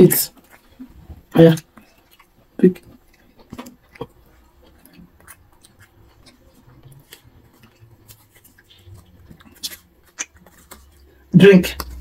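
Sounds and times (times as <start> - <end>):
paper slip rustling and crinkling: 3.2 - 12.0.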